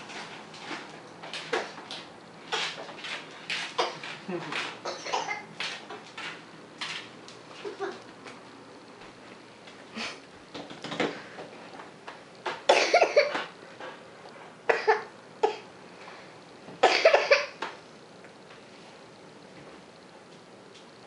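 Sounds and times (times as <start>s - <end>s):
person coughing: 4.9s - 5.5s, 12.7s - 13.4s, 14.7s - 15.7s, 16.8s - 17.6s.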